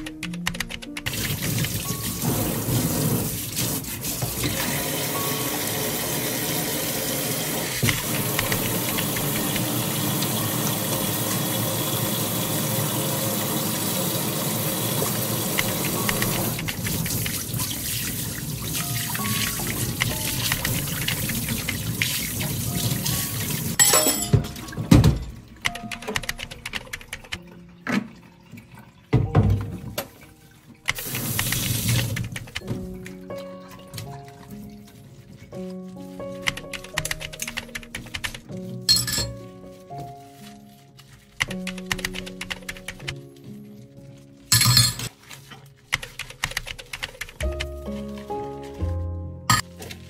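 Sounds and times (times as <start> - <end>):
background music: 0.0 - 50.0
tap water running into sink: 1.1 - 26.2, 26.8 - 35.7.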